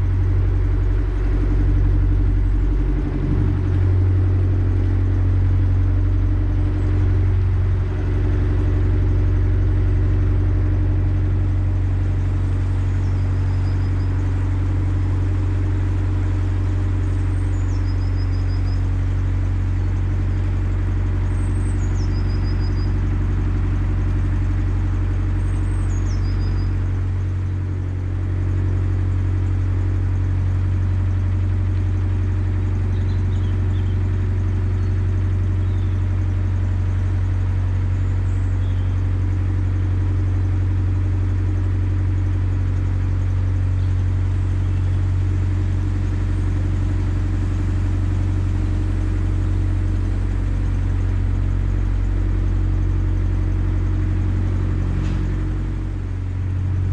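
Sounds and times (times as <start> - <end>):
diesel boat engine droning: 0.0 - 56.9.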